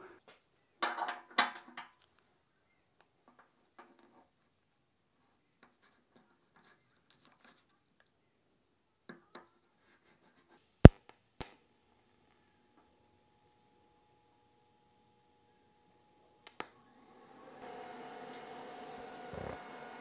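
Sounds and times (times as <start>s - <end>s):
welding arc humming and whining: 17.6s - 20.0s.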